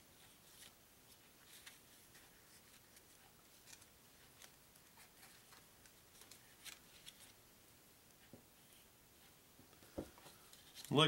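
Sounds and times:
cardboard cards ticking and rustling: 1.4 - 7.4.

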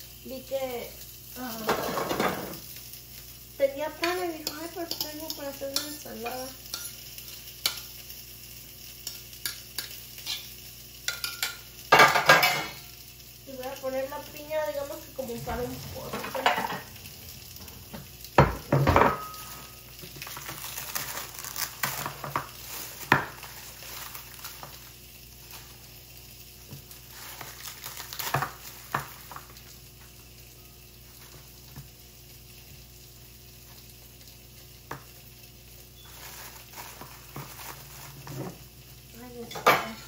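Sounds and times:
plastic bag crinkling: 19.3 - 25.9, 26.9 - 29.6, 36.0 - 38.4.

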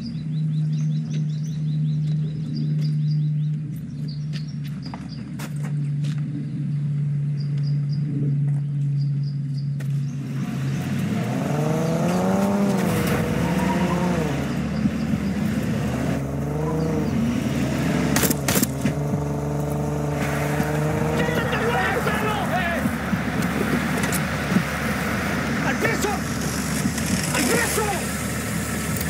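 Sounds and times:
pickup truck engine revving: 10.0 - 29.0.

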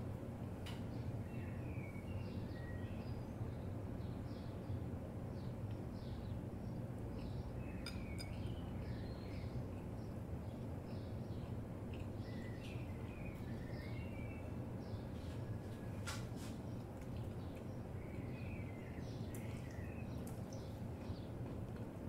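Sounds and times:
birds chirping: 5.4 - 16.0, 16.7 - 21.5.

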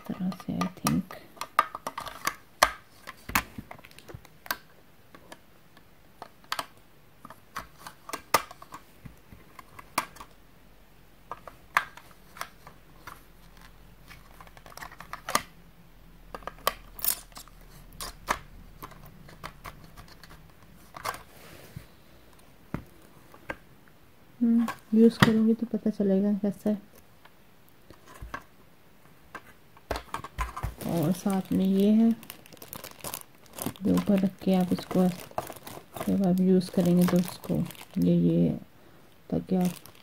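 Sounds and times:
plastic parts clicking and snapping: 0.0 - 10.4, 11.3 - 15.5, 16.3 - 21.3, 29.3 - 38.0, 39.6 - 40.0.

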